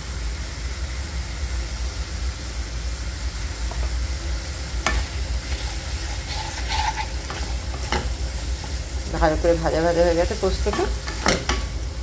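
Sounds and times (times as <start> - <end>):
potatoes sizzling in oil: 0.0 - 12.0
wooden spatula scraping pan: 4.8 - 11.8.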